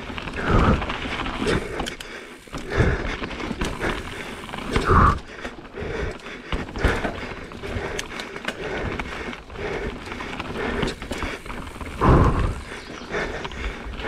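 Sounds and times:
bike clattering over rocks: 0:00.1 - 0:05.6.

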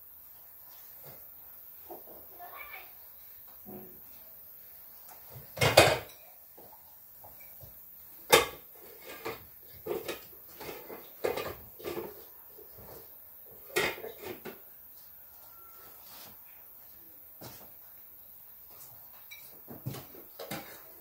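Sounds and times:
dishes and pots clattering: 0:05.3 - 0:12.3, 0:13.6 - 0:14.6, 0:19.1 - 0:21.0.

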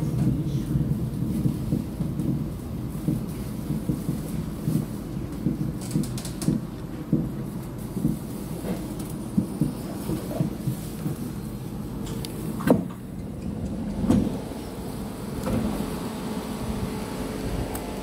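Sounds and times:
metro car rumble: 0:00.0 - 0:18.0
thuds and knocks from wheels: 0:01.2 - 0:11.2, 0:12.1 - 0:13.0, 0:14.0 - 0:14.5.

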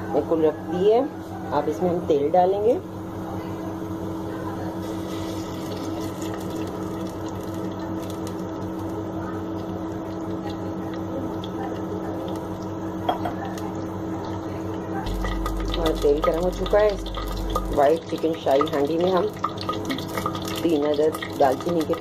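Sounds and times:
oil pouring into a pot: 0:04.8 - 0:12.7, 0:15.1 - 0:22.0
steady hum and rushing noise: 0:15.0 - 0:18.2.

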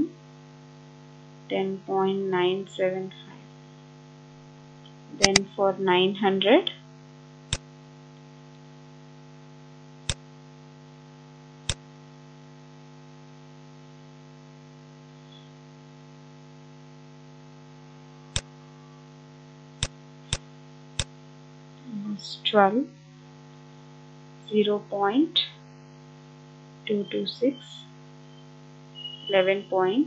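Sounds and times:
electrical mains hum: 0:00.0 - 0:30.0
mouse and keyboard clicks: 0:05.2 - 0:05.4.

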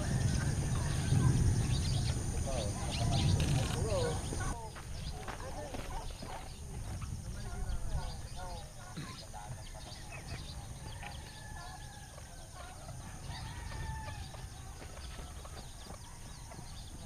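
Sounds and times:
steady low rumble: 0:00.0 - 0:05.2
birds calling: 0:00.0 - 0:17.0.

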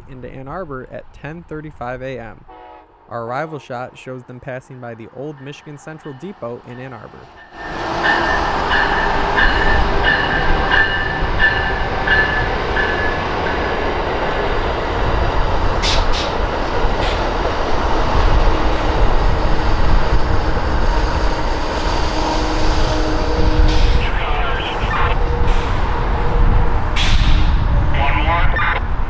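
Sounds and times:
train bell ringing: 0:05.2 - 0:13.7
train wheels rumbling on rail: 0:05.2 - 0:28.0.

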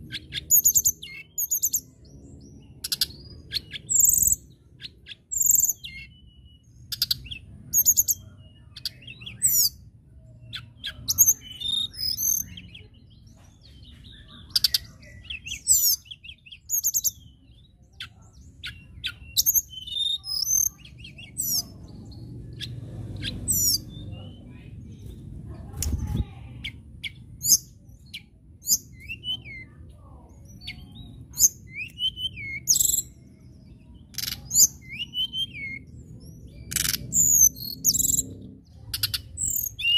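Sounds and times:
bird singing high whistled chirps: 0:00.2 - 0:09.8, 0:10.4 - 0:12.9, 0:13.8 - 0:24.3, 0:27.0 - 0:29.8, 0:30.4 - 0:38.3, 0:38.9 - 0:39.9
low background rumble: 0:20.8 - 0:29.0.

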